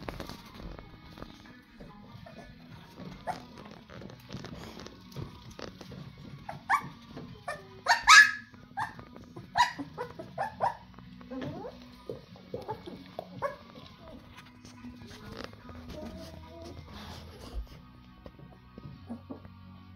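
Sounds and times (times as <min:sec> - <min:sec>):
puppies squealing and whining: 0:02.2 - 0:03.7, 0:06.4 - 0:14.3.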